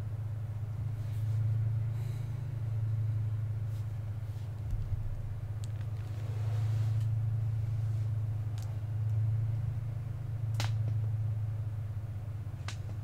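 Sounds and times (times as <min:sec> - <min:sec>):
steady low hum: 0:00.0 - 0:13.0
sharp snaps: 0:10.5 - 0:11.0.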